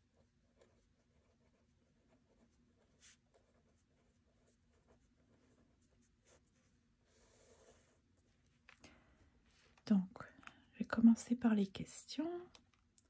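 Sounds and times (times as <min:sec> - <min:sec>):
pen scratching on paper: 0:00.0 - 0:08.3.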